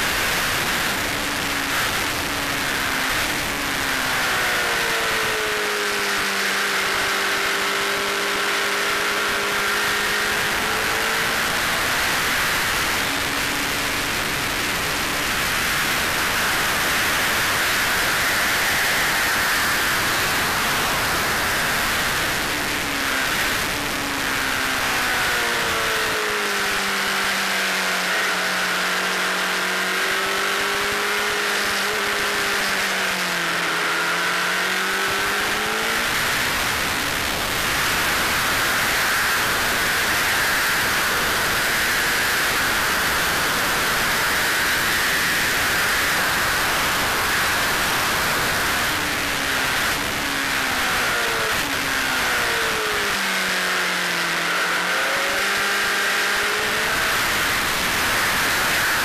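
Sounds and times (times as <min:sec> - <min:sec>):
motorcycle engine at speed: 0:00.0 - 0:59.0.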